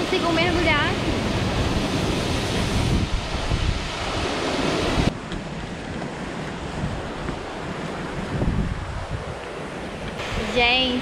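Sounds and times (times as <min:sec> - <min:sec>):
waterfall rushing: 0:00.0 - 0:05.2, 0:09.6 - 0:11.0
wind on microphone: 0:00.0 - 0:11.0.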